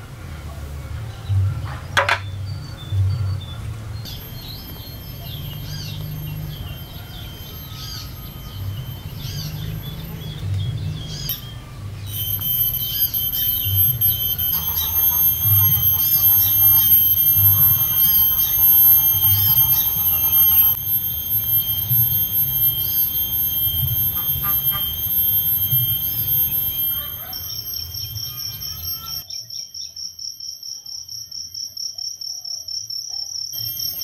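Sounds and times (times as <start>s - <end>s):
steady high-pitched whine: 0.0s - 29.8s, 33.5s - 34.0s
birds chirping: 1.2s - 29.4s
low irregular pulsing: 2.4s - 29.2s.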